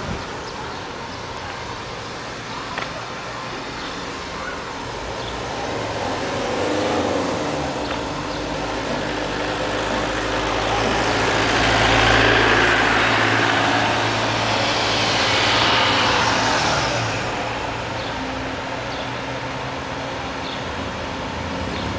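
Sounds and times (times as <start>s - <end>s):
diesel engine under load: 4.7s - 21.9s.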